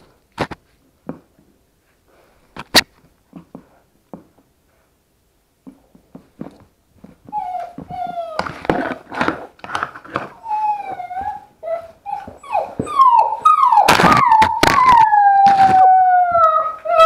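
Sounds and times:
puppy whimpers: 7.3s - 9.1s, 10.2s - 17.0s
puppies chewing on camera casing: 13.8s - 16.6s.

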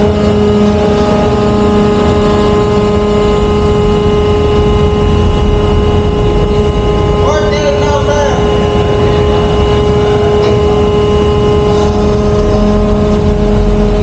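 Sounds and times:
pump motors droning: 0.0s - 14.0s
steady machine whine: 0.0s - 14.0s.

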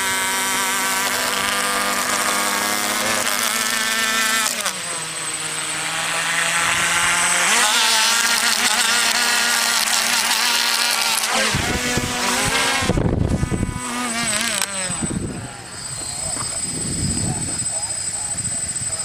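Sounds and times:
electric motors whining: 0.0s - 19.0s
low rumbling on microphone: 11.5s - 13.9s.

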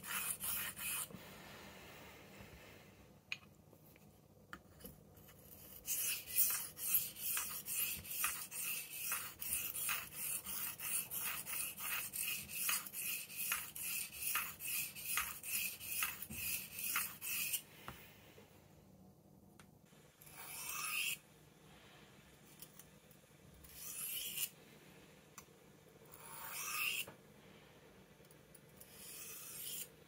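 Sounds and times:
blade rasping on sharpening plate: 0.0s - 1.1s, 5.7s - 17.6s, 20.3s - 21.2s, 23.7s - 24.5s, 26.1s - 27.1s, 28.8s - 29.9s.

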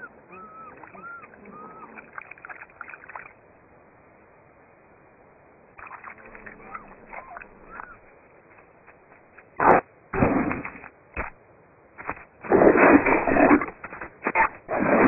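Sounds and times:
cheetahs chirping: 0.0s - 3.4s, 5.8s - 8.1s.

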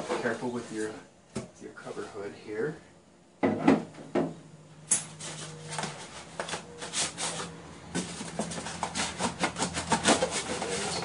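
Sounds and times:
styrofoam rubbing and scraping: 0.0s - 1.0s, 5.2s - 11.0s.

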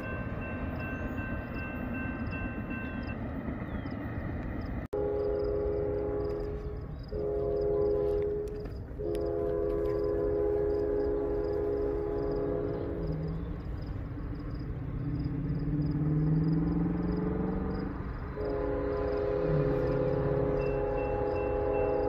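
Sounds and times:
locomotive air horn blasts: 4.9s - 13.6s, 18.2s - 22.0s.

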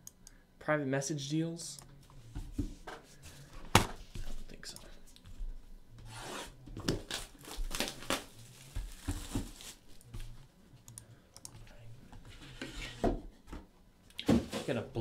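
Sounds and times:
plastic shrink-wrap tearing and crinkling: 7.0s - 9.8s.

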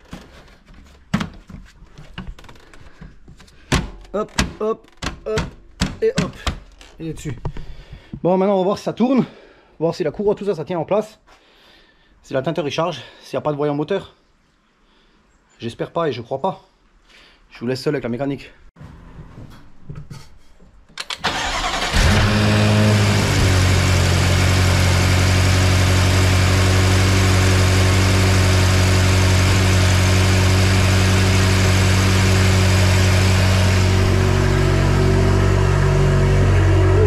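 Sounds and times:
engine starter cranking: 21.0s - 25.0s
car engine idling: 21.2s - 37.0s.

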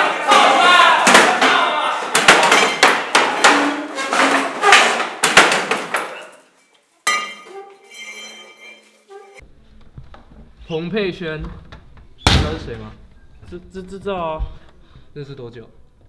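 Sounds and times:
loud metallic bangs and clanks: 0.2s - 6.2s.

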